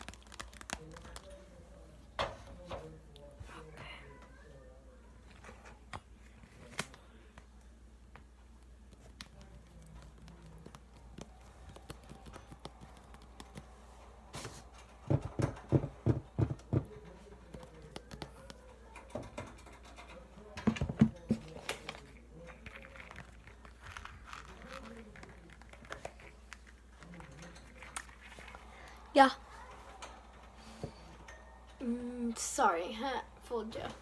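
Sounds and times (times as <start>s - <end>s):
hands clicking and tapping: 8.9s - 13.8s, 17.5s - 18.7s.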